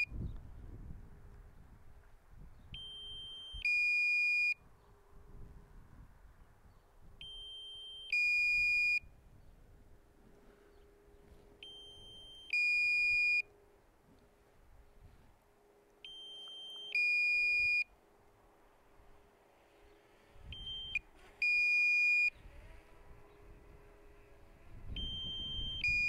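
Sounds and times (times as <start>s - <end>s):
two-note electronic warning beeps: 2.8s - 4.6s, 7.2s - 9.1s, 11.6s - 13.5s, 16.0s - 17.9s, 20.5s - 22.4s, 24.9s - 26.0s.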